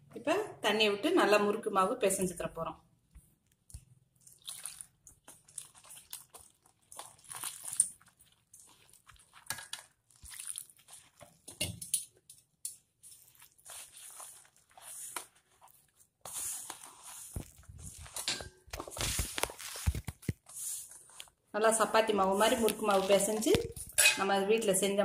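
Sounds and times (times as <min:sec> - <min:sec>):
hands mixing dough in metal bowl: 0:03.1 - 0:25.0
water pouring: 0:04.2 - 0:12.1.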